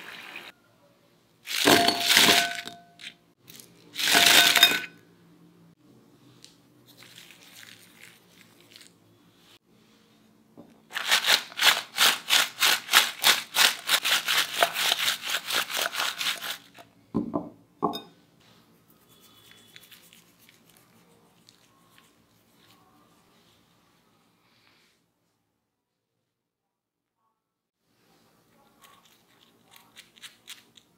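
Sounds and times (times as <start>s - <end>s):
food rattling in glass bowl: 1.5s - 3.1s, 4.0s - 4.9s, 10.9s - 16.8s.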